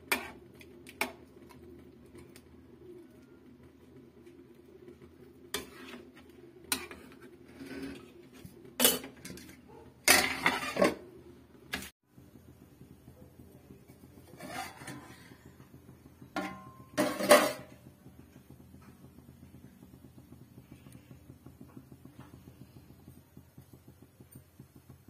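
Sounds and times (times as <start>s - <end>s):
metal spatula clanking on pan: 8.8s - 11.0s, 16.4s - 17.8s
steel lid clattering onto pan: 8.8s - 11.0s, 16.4s - 17.7s.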